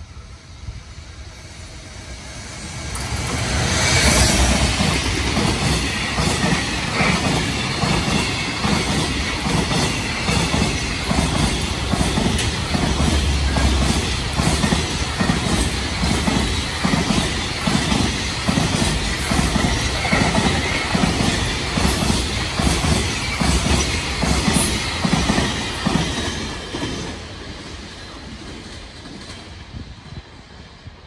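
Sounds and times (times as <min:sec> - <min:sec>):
train wheels clacking over rail joints: 0:02.9 - 0:27.2.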